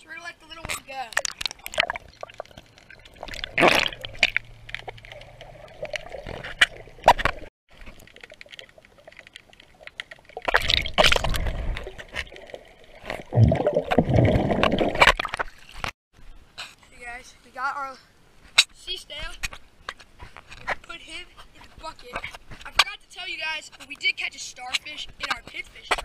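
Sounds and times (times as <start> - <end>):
rushes of water: 1.2 - 15.9
underwater sloshing and gurgling: 1.2 - 15.9.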